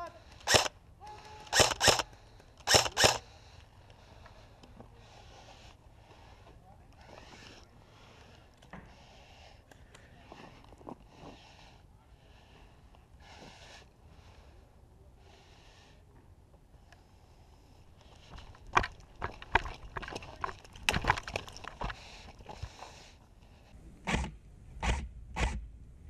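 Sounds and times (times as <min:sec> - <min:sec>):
footsteps on gravel and dirt: 0:18.1 - 0:23.0.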